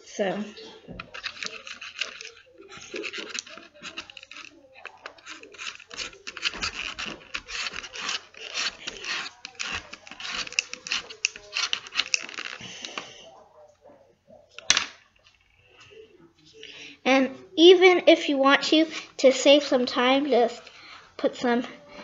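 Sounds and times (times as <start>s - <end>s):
fingertips scratching chalk pastel: 0.5s - 13.0s.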